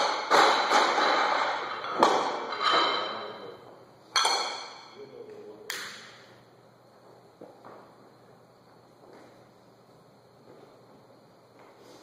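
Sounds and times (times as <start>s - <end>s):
barbell plates thudding on floor: 0.0s - 3.2s, 4.1s - 5.0s.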